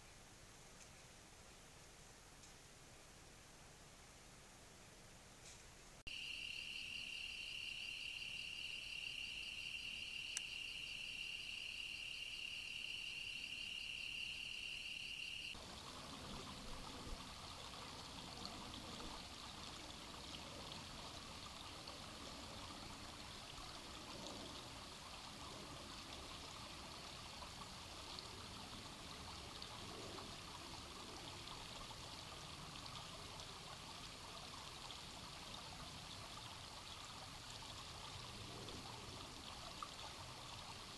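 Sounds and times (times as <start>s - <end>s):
night insects trilling: 6.1s - 32.3s
creek running over rocks: 15.6s - 40.9s.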